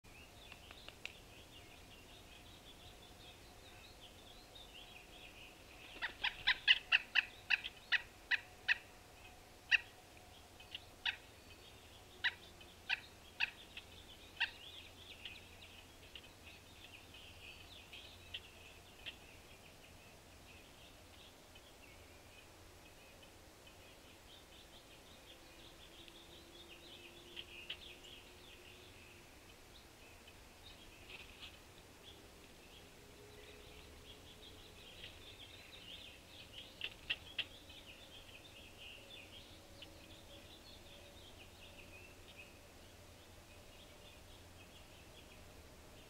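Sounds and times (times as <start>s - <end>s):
birds chattering: 0.2s - 22.2s.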